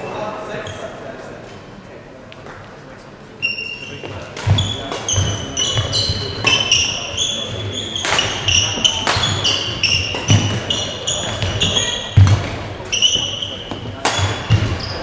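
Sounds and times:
shoes squeaking on court: 0.0s - 1.0s, 3.4s - 15.0s
racket striking shuttlecock: 8.0s - 15.0s.

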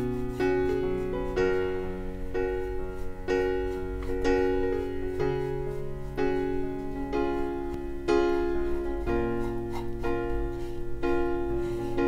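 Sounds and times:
piano chords over bass notes: 0.0s - 12.0s.

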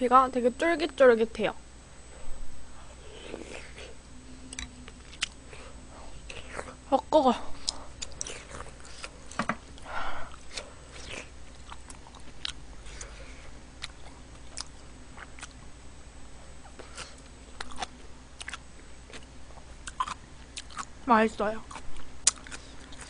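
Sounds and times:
person chewing food: 3.0s - 6.9s, 7.5s - 15.7s, 16.6s - 20.9s, 21.6s - 23.0s
breathy sounds: 7.4s - 10.9s.

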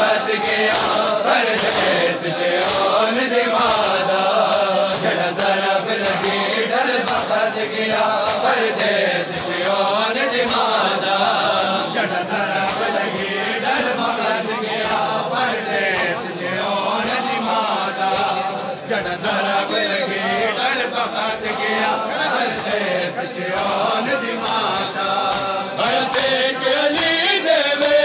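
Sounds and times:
crowd of men chanting: 0.0s - 28.0s
hands slapping chests: 0.0s - 28.0s.

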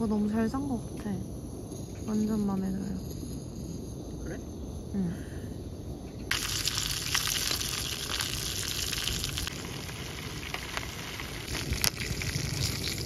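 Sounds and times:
popcorn sizzling and crackling: 6.3s - 13.0s.

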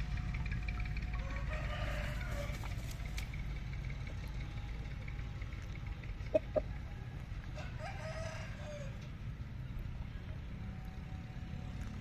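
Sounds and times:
low rumble: 0.0s - 7.6s
chicken clucking: 6.2s - 6.8s.

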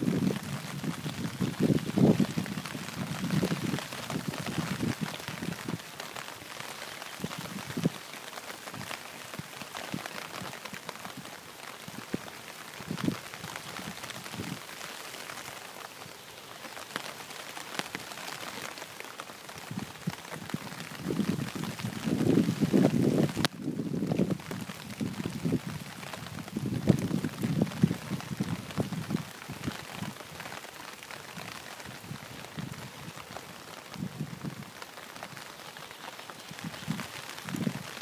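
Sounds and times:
wind buffeting the microphone: 0.0s - 5.9s, 7.2s - 8.1s, 11.9s - 14.7s, 19.6s - 30.2s, 31.4s - 33.3s, 33.9s - 34.7s, 36.4s - 38.0s
steady rain falling: 0.0s - 38.0s.

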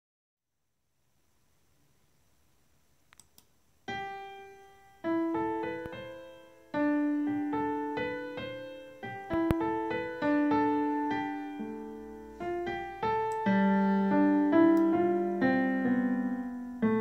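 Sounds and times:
faint clicks: 3.1s - 3.5s
slow piano melody: 3.9s - 17.0s.

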